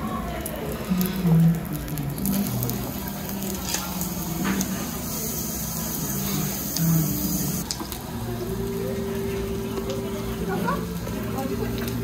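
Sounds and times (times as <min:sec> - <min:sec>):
faint broken voices: 0:00.0 - 0:12.0
steady hissing noise: 0:00.8 - 0:09.7.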